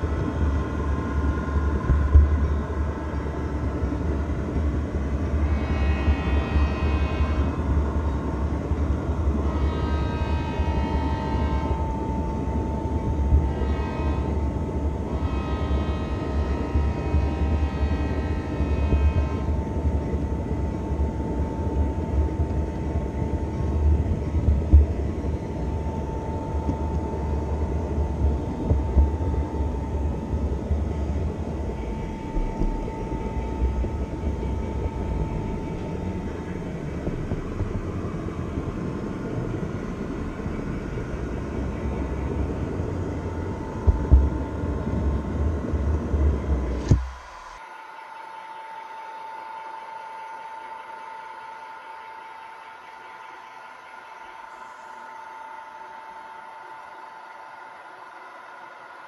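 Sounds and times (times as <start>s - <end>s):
model train rumbling on track: 0.0s - 47.6s
steady whine: 0.0s - 59.0s
train horn: 5.1s - 24.1s.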